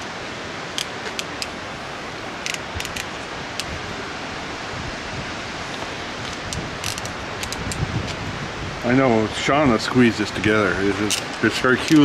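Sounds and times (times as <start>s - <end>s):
steady outdoor hiss: 0.0s - 12.0s
small metallic clicks: 6.3s - 7.8s, 11.0s - 12.0s.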